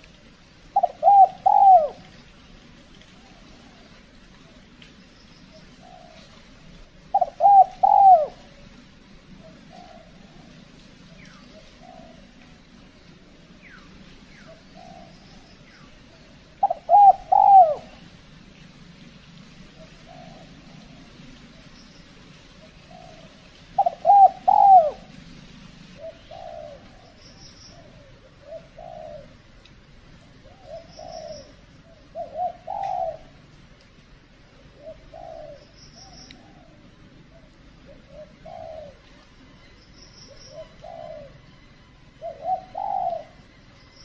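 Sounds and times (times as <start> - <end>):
doves cooing: 0.0 - 44.0
small bird chirping: 26.0 - 28.0, 30.6 - 33.2, 35.2 - 36.5, 39.6 - 41.4.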